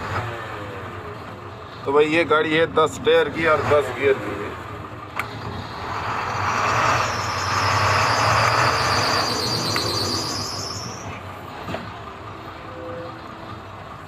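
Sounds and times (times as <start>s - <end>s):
truck engine hum: 0.0s - 14.0s
loud mechanical noise: 5.1s - 12.2s
high-pitched squeal: 5.6s - 11.2s.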